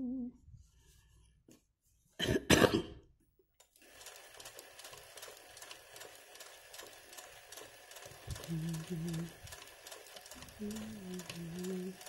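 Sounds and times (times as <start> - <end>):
person coughing: 2.2 - 3.1
sewing machine stitching: 3.7 - 12.0.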